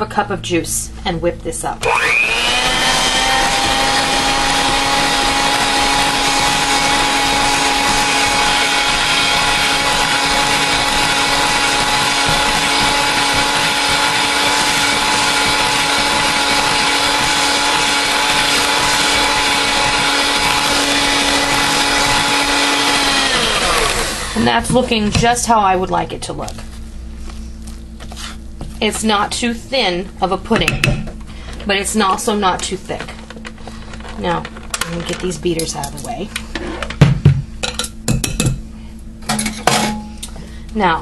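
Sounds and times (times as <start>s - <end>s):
electric hand mixer running: 1.8s - 24.6s.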